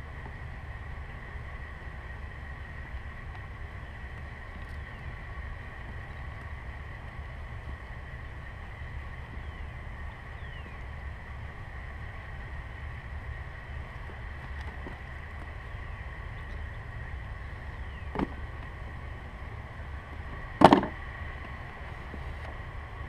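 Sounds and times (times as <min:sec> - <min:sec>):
faint whine: 0:00.0 - 0:23.0
low background rumble: 0:00.0 - 0:23.0.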